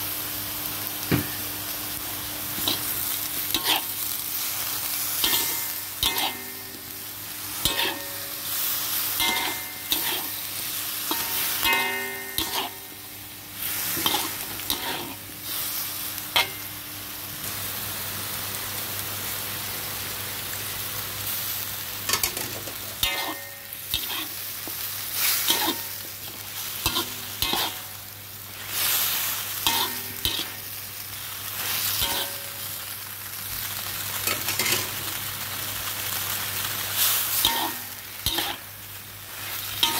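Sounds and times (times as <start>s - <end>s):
food sizzling in a pan: 0.0s - 39.9s
metal spatula scraping pan: 3.5s - 4.0s, 5.2s - 6.8s, 7.6s - 8.3s, 9.2s - 10.4s, 11.1s - 12.9s, 13.9s - 15.2s, 22.1s - 24.4s, 25.3s - 27.9s, 29.6s - 30.6s, 32.0s - 32.5s, 37.4s - 38.6s.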